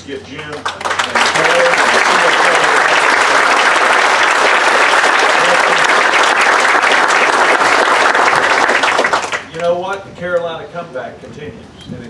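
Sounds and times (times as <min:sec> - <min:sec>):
audience applauding: 0:00.4 - 0:09.7.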